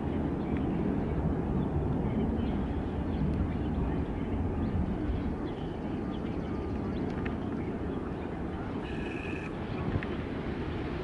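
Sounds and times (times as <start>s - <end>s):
faint bird chirps: 8.8s - 9.5s.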